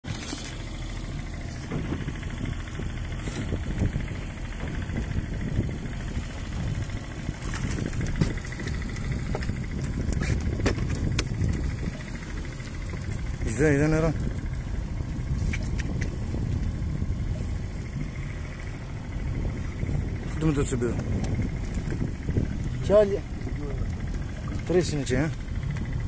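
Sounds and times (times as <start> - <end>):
boat engine idling: 0.0 - 26.0
clicks and knocks of gear: 0.1 - 0.8, 7.5 - 13.2, 15.4 - 16.6.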